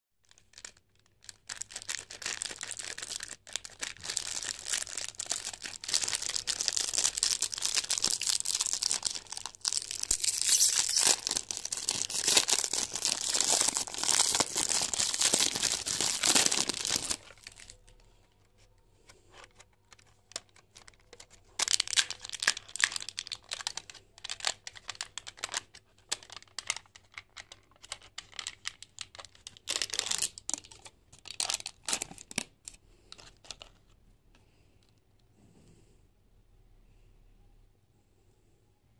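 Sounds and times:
plastic wrapper crinkling and tearing: 0.2 - 18.0, 19.4 - 34.0
plastic tray and foil crackling: 0.3 - 17.8.

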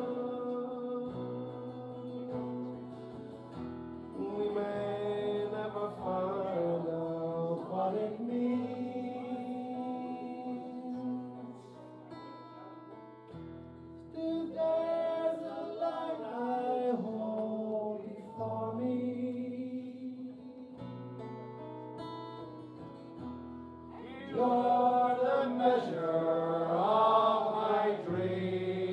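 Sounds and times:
man singing a ballad: 0.0 - 2.9, 4.1 - 11.9, 14.0 - 21.0, 24.0 - 28.9
acoustic guitar: 0.0 - 28.9.

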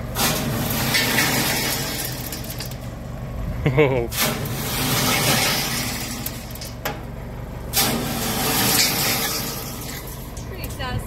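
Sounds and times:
tractor engine running: 0.0 - 11.0
dirt rattling through metal screen: 0.2 - 2.9, 4.1 - 7.0, 7.7 - 10.6.

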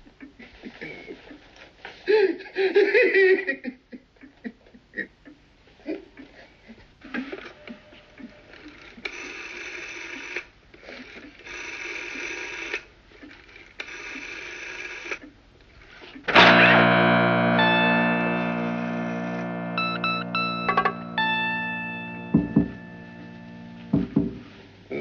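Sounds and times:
distorted electric guitar chord: 16.3 - 25.0.

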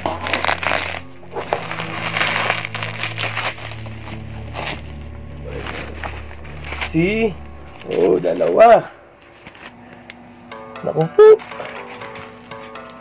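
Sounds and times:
knife cutting bubble wrap: 0.0 - 7.0
bubble wrap crinkling: 0.0 - 10.3, 11.4 - 13.0.

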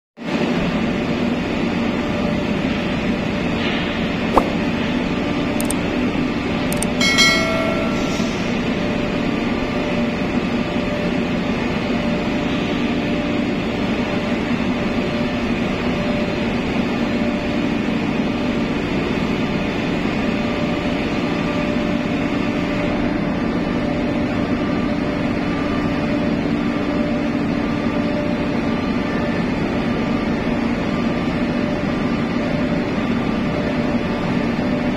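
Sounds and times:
ship machinery drone: 0.3 - 34.9
sharp click: 4.3 - 4.6, 5.6 - 5.8.

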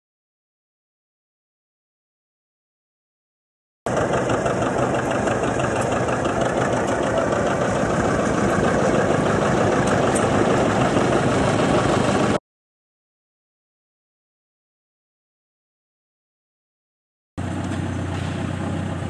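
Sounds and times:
tractor engine running: 3.9 - 12.4, 17.4 - 19.0.

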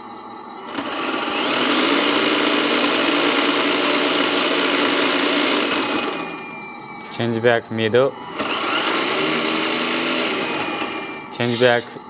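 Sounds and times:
electric toy truck drivetrain running: 0.6 - 6.6, 8.3 - 11.8.

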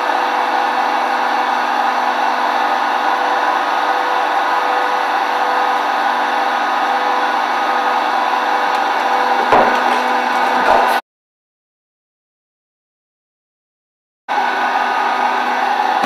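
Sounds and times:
hydraulic baler drone: 0.0 - 11.0, 14.3 - 16.0
metal knocks: 9.4 - 11.0.

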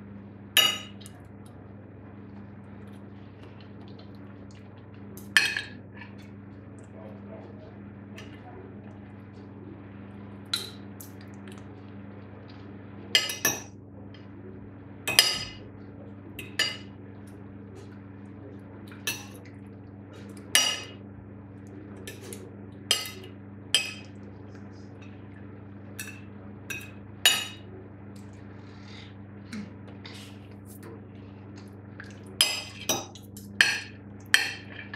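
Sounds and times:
steady low hum: 0.0 - 34.9
cutlery clinking on a plate: 20.6 - 21.0.

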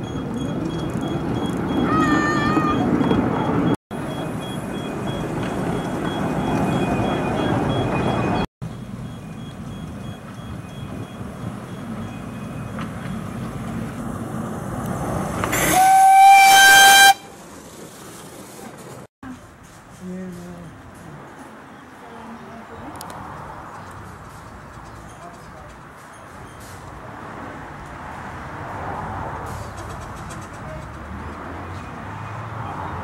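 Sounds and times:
steam whistle blast: 15.6 - 17.3.

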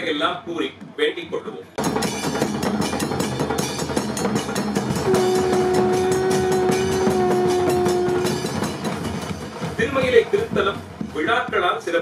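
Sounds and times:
fast drumming: 0.0 - 12.0
hand cymbals clashing: 1.8 - 9.8
conch shell blown: 5.0 - 9.0.

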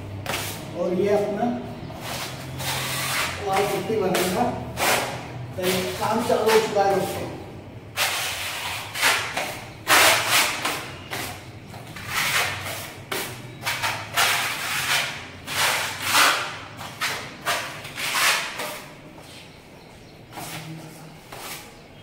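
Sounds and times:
putty blade scraping a wall: 2.0 - 7.2, 7.9 - 19.0.

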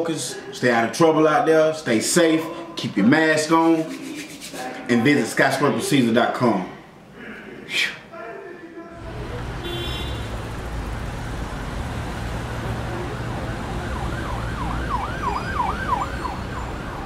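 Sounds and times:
siren sound effect: 12.9 - 17.0.

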